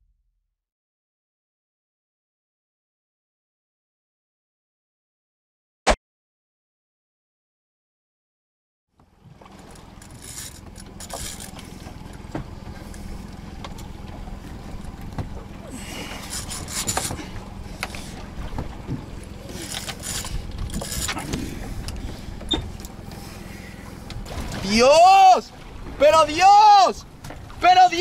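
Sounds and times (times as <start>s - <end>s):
water sloshing against hull: 8.9s - 28.0s
wind rumble on microphone: 20.0s - 22.9s.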